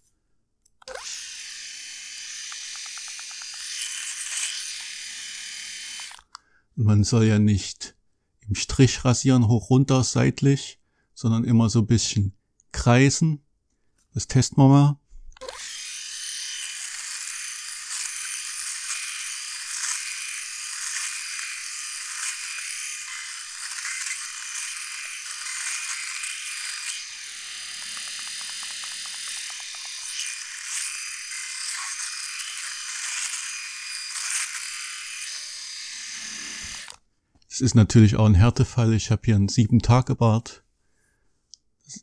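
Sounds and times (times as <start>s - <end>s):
electric shaver cutting stubble: 0.8s - 6.3s, 15.4s - 37.0s.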